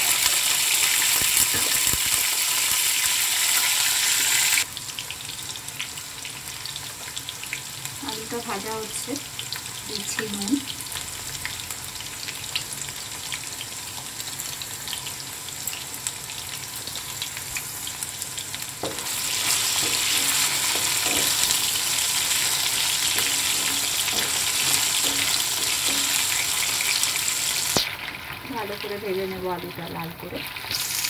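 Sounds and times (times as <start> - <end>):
potatoes sizzling in oil: 0.0 - 31.0
spatula stirring in pan: 18.8 - 28.4.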